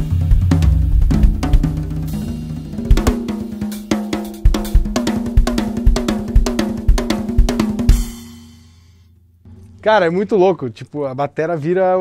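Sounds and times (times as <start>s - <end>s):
bass drum: 0.0s - 3.6s, 4.4s - 8.3s
snare drum: 0.0s - 8.5s
ringing tom drums: 0.0s - 8.7s
cymbal hits: 7.9s - 9.7s.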